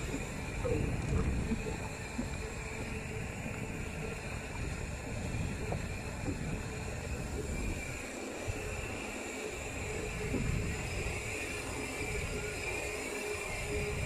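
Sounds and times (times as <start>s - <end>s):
wind buffeting microphone: 0.0s - 14.0s.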